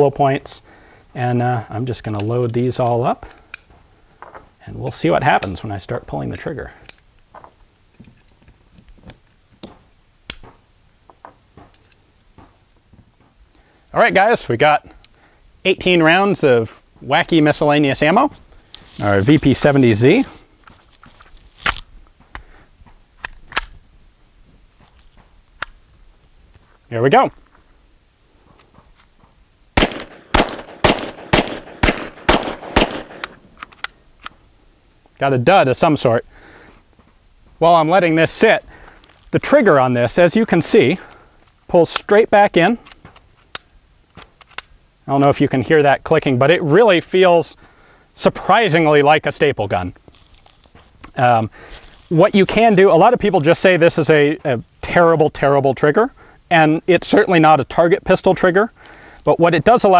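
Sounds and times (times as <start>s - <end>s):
pistol shots: 29.8s - 33.5s
cartridges clicking into magazine: 29.8s - 34.4s.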